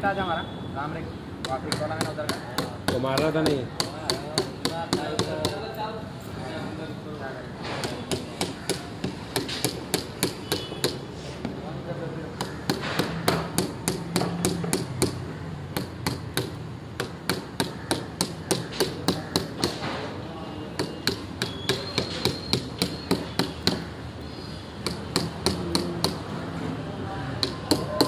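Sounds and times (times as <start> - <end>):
hammer striking a chisel: 1.4 - 5.6, 7.7 - 11.0, 12.4 - 20.1, 20.7 - 23.9, 24.8 - 26.3, 27.3 - 28.0.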